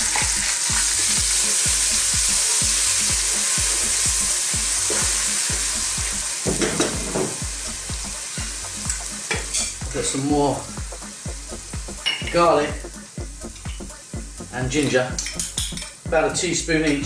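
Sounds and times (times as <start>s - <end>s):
onions sizzling in hot oil: 0.0s - 15.7s.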